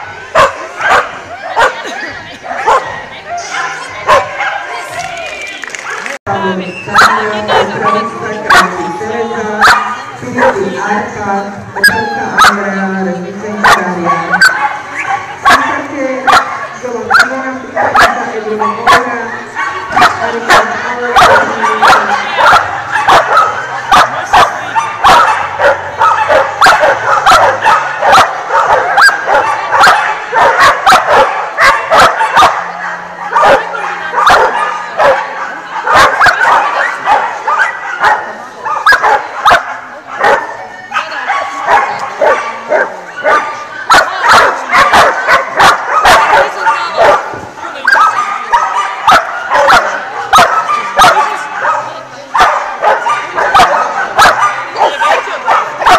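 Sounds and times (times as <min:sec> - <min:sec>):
dog barking excitedly: 0:00.3 - 0:01.9, 0:02.5 - 0:04.7, 0:06.9 - 0:08.9, 0:09.6 - 0:10.7, 0:11.8 - 0:12.7, 0:13.6 - 0:55.9.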